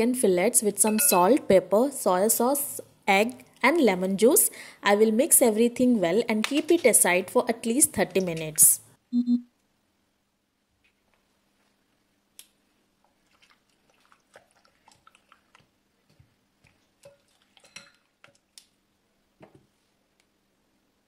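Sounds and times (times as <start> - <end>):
wet squishing of raw chicken: 13.0 - 18.7.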